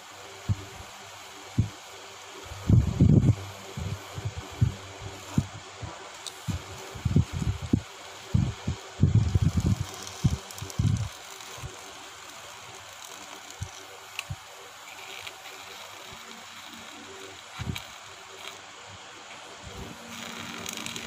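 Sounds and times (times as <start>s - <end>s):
small motor whirring: 6.2s - 18.7s, 19.5s - 21.0s.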